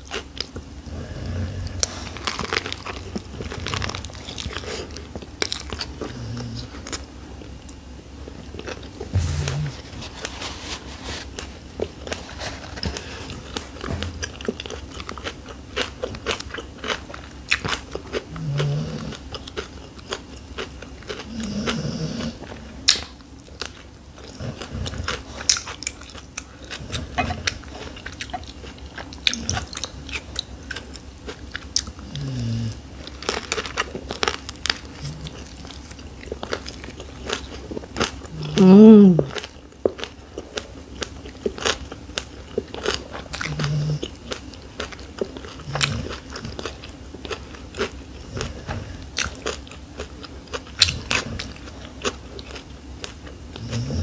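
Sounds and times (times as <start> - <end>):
wet chewing: 0.0 - 32.4, 33.0 - 54.0
vegetables crunching: 1.6 - 7.1, 8.5 - 21.8, 33.0 - 54.0.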